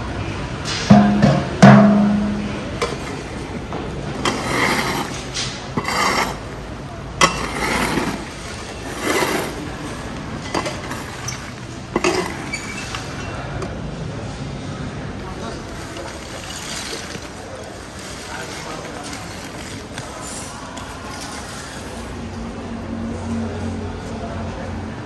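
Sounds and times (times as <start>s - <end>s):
metal pot clanging: 0.9s - 3.0s, 8.9s - 13.3s
metal scoop scraping charcoal: 4.1s - 13.4s, 15.2s - 22.1s.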